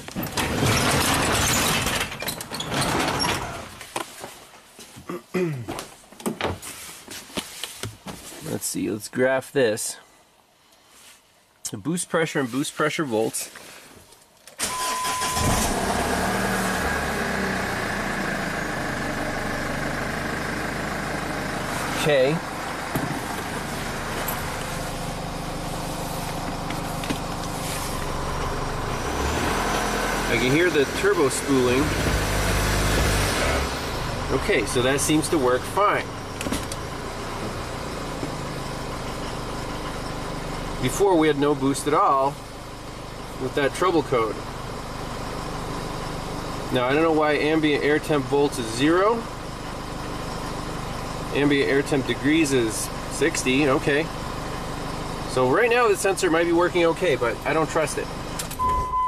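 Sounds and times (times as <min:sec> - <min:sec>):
garage door rattling on tracks: 0:00.3 - 0:03.6
diesel engine running: 0:14.6 - 0:59.0.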